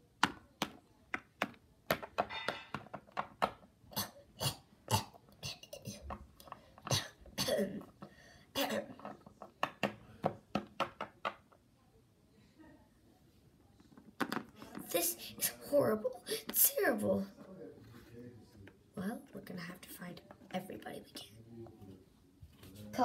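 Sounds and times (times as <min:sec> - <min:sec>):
person coughing: 0:06.8 - 0:07.8.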